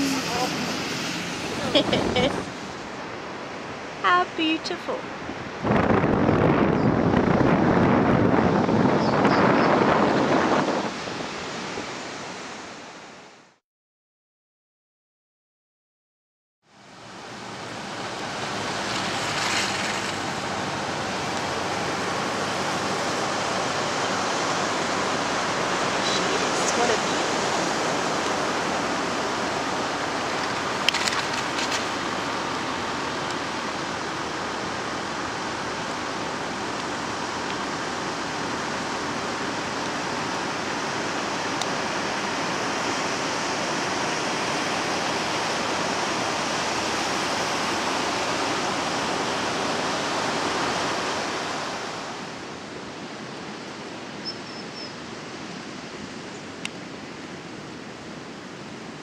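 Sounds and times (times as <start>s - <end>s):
ocean surf breaking on beach: 0.0s - 13.4s, 16.7s - 59.0s.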